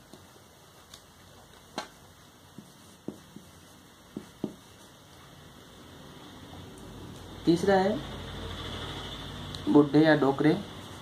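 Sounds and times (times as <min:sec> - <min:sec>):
low background hiss: 0:00.0 - 0:11.0
marker pen tapping on paper: 0:01.7 - 0:04.9.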